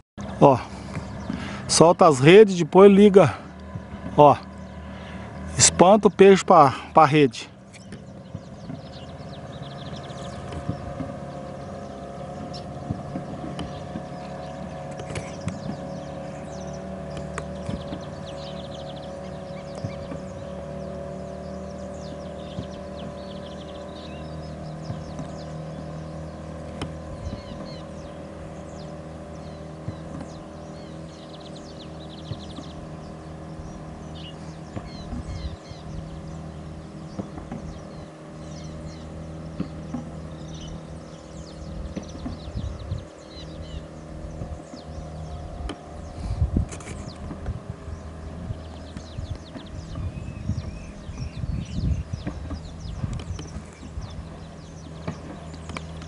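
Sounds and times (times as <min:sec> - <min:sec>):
motorboat engine running: 0:00.2 - 0:56.0
small birds chirping: 0:00.2 - 0:56.0.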